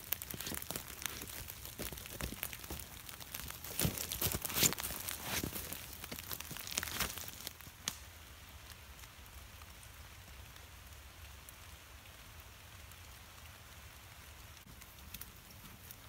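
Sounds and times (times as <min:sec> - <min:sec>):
footsteps crunching through leaves: 0:00.0 - 0:07.5
twig snapping: 0:00.0 - 0:08.0
rain pattering: 0:00.0 - 0:16.0.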